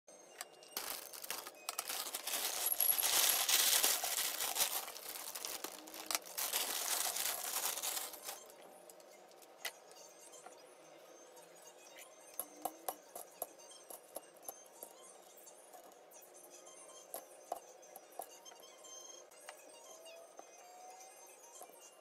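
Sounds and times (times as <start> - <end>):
cereal flakes pouring onto plate: 0.8 - 8.4.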